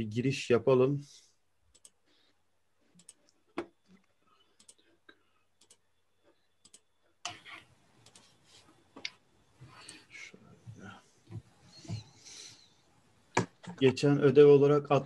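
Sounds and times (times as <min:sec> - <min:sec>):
computer mouse clicking: 0:01.7 - 0:02.0, 0:03.0 - 0:03.4, 0:04.6 - 0:04.8, 0:05.6 - 0:05.8, 0:06.6 - 0:08.3.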